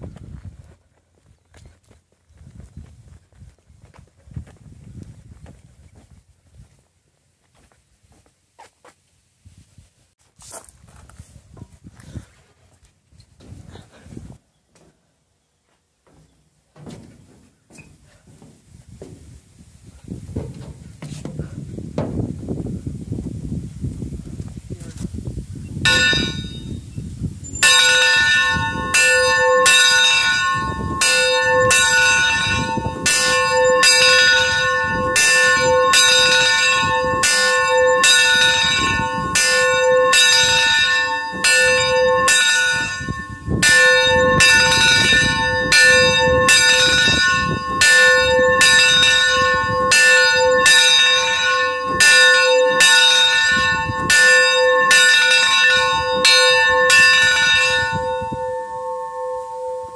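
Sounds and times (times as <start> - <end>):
bell ringing: 25.9 - 26.8, 27.5 - 59.9.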